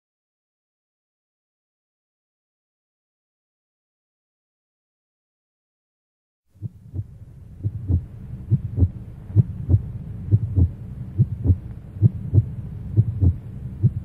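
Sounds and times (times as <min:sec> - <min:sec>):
low steady hum: 0:06.5 - 0:14.0
heartbeat thumps: 0:06.6 - 0:14.0.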